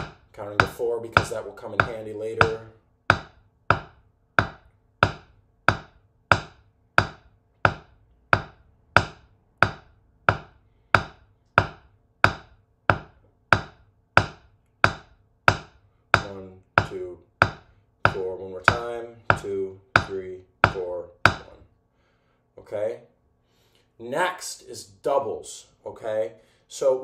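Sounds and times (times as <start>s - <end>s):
drumsticks tapping practice pad: 0.0s - 21.6s.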